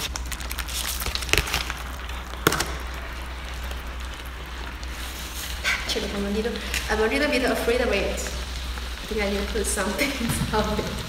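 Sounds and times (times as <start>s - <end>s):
crackling fizz of heating pack: 0.0s - 11.0s.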